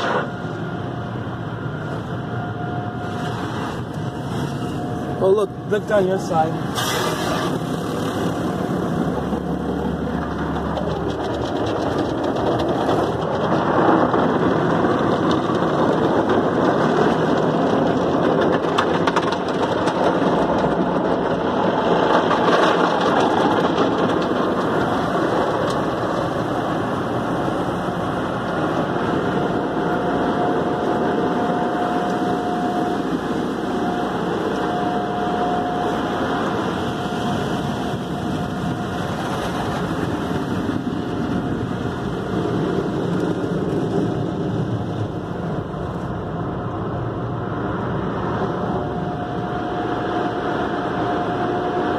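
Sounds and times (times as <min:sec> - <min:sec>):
car wash water spray rushing: 0:03.0 - 0:51.9
thin machine whine: 0:24.5 - 0:42.4, 0:48.0 - 0:51.9.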